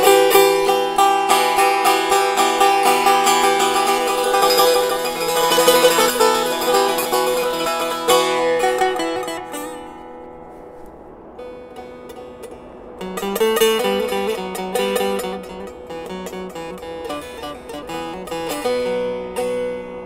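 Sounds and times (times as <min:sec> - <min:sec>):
plucked string instrument: 0:00.0 - 0:20.0.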